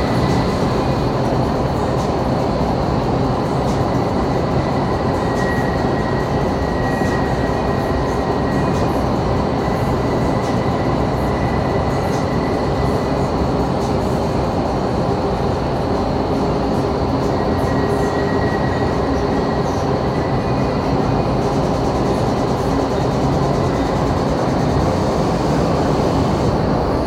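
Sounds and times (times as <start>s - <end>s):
loud rush of air: 21.6s - 27.0s.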